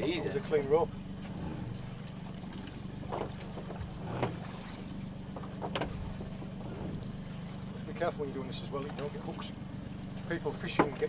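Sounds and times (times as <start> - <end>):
outboard motor idling: 0.0 - 11.0
rope knocks and splashes: 1.8 - 7.7.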